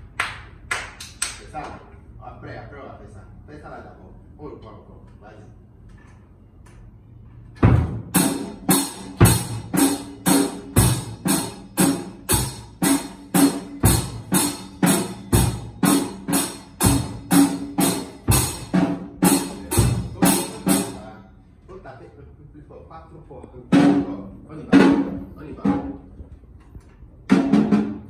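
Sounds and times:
drum kit steady beat: 7.6s - 21.2s, 27.3s - 28.0s
cymbals crashing: 8.1s - 21.2s.

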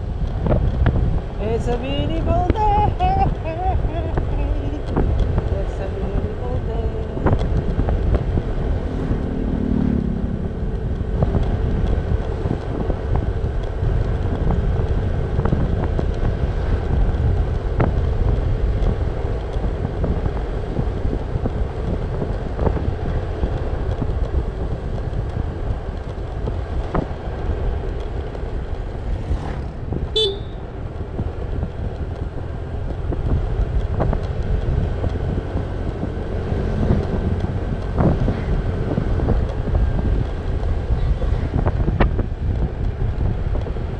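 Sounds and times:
motorcycle engine and wind rush: 0.0s - 43.9s
motorcycle horn toot: 30.1s - 30.6s.

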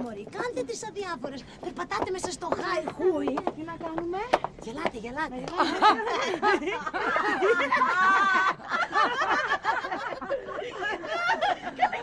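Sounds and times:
high wavering laugh: 5.6s - 12.0s
women laughing: 5.6s - 12.0s.

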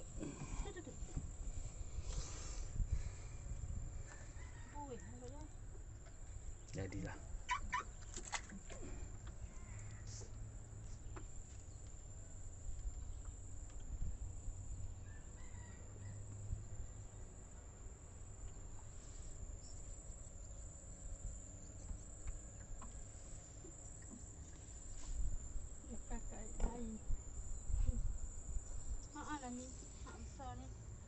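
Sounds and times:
wind: 0.0s - 31.0s
water: 2.6s - 14.9s, 18.0s - 26.5s.

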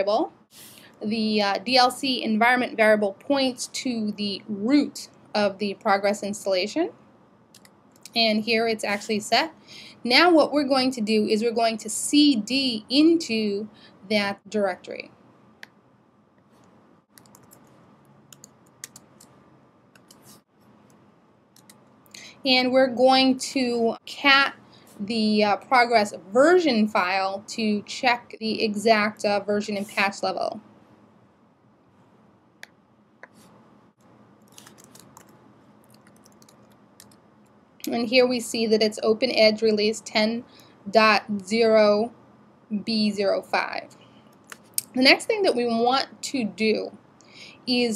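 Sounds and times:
computer keyboard keystrokes: 17.1s - 17.7s, 18.3s - 21.0s, 34.5s - 37.2s.

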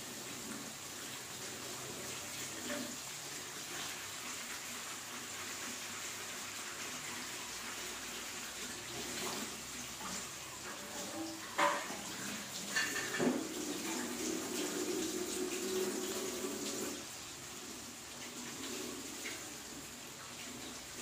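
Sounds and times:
vegetables sizzling in a pan: 0.0s - 21.0s.

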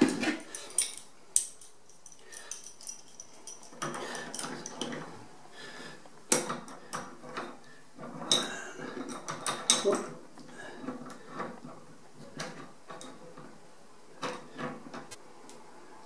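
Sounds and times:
handling and scraping noise: 0.0s - 16.0s
metal tools clinking on valve: 0.4s - 5.0s.

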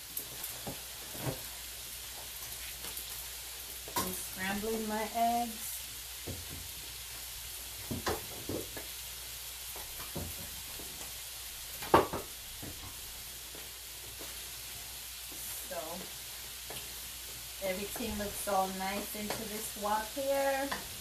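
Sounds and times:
oil sizzling: 0.0s - 21.0s
wooden spatula knocking on wok: 11.8s - 12.8s.

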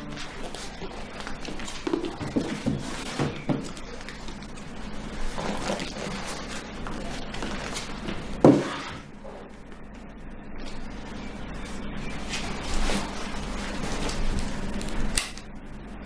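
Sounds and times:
paper rustling: 0.1s - 9.0s, 12.2s - 15.1s.

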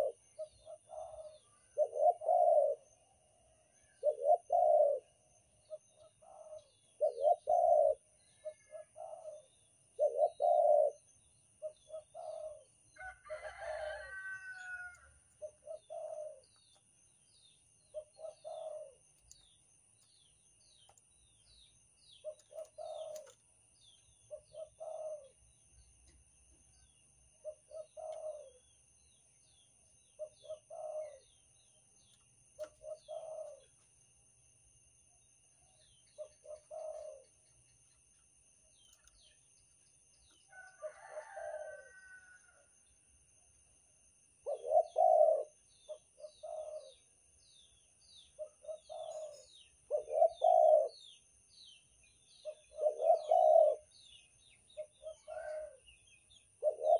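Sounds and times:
dove cooing: 0.0s - 16.8s, 17.9s - 20.2s, 21.6s - 23.4s, 24.2s - 25.5s, 27.4s - 28.8s, 30.2s - 31.4s, 32.6s - 33.8s, 35.7s - 37.4s, 40.5s - 42.6s, 44.4s - 47.1s, 48.3s - 51.2s, 52.4s - 55.9s, 56.6s - 56.9s.

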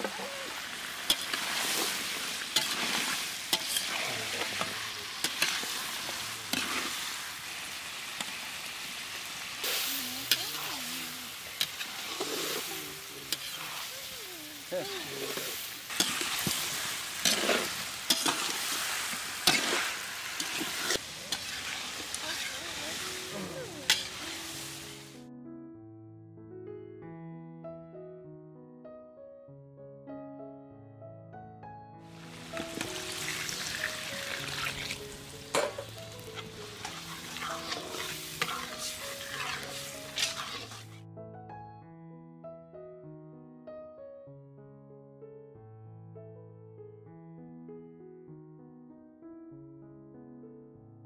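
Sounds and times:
vegetables sizzling in a wok: 0.0s - 25.2s, 32.1s - 41.0s
metal spatula scraping a pan: 1.1s - 7.1s, 11.5s - 13.8s, 15.9s - 24.8s, 32.6s - 41.0s.

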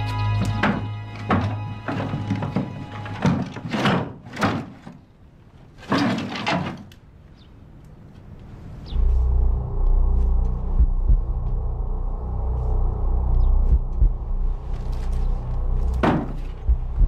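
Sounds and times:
loud low drone: 8.6s - 17.0s.

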